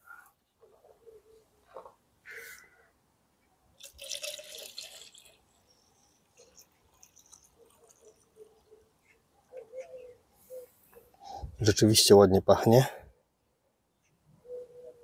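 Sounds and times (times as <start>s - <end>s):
water running into container: 3.8s - 8.2s.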